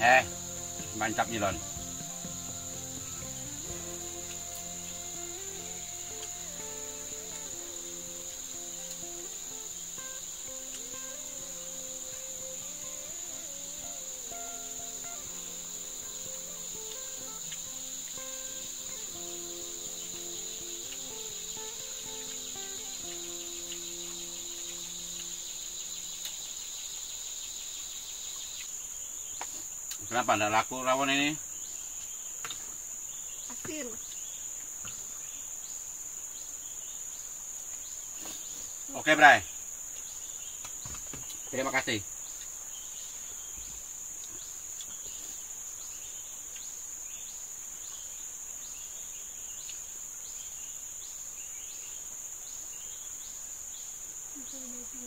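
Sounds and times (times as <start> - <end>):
soft background music: 0.0 - 26.1
insects droning: 0.0 - 55.0.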